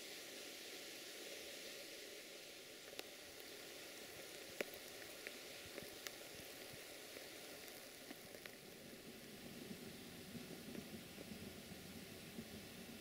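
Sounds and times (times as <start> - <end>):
faint steady hiss: 0.0 - 13.0
soft ticks and clicks: 2.8 - 13.0.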